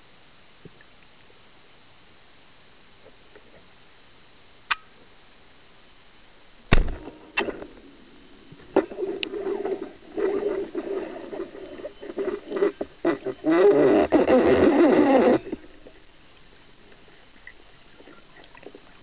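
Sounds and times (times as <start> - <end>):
faint click: 4.7 - 5.3
speargun firing crack: 6.7 - 7.6.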